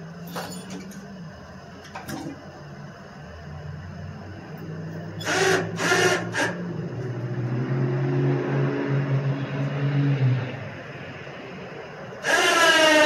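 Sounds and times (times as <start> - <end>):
engine revving unevenly: 3.6 - 13.0
harsh screeches: 5.2 - 6.8, 12.2 - 13.0.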